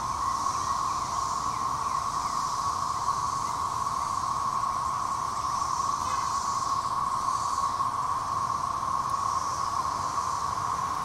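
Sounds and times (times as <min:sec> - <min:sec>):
cicadas droning: 0:00.0 - 0:11.0.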